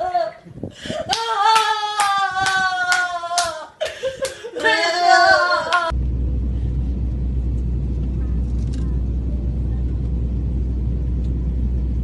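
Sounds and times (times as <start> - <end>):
sharp hand claps: 1.1 - 4.7
airliner cabin drone: 5.9 - 12.0.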